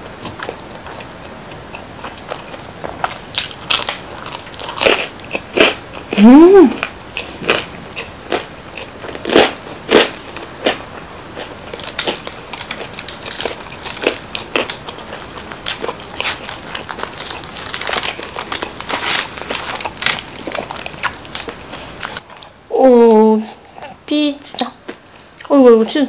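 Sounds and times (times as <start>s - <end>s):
chewing crispy crust: 0.0s - 24.0s
crust crackling as torn: 3.0s - 5.1s, 11.7s - 22.5s.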